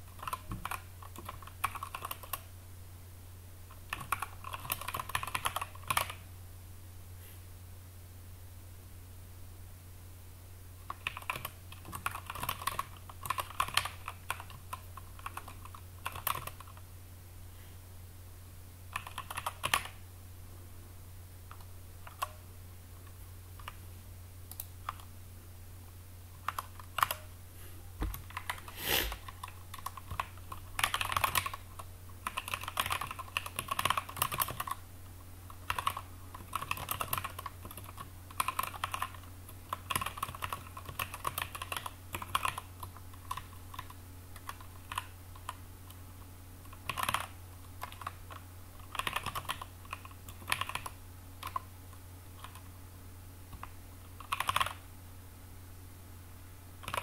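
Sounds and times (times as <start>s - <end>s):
steady low hum: 0.0s - 57.0s
typing on computer keyboard: 0.1s - 2.5s, 3.8s - 6.2s, 10.9s - 16.8s, 18.9s - 20.0s, 21.5s - 22.4s, 24.5s - 25.1s, 26.4s - 27.3s, 28.1s - 34.8s, 35.6s - 45.6s, 46.6s - 51.7s, 52.4s - 52.7s, 53.5s - 54.8s, 56.8s - 57.0s.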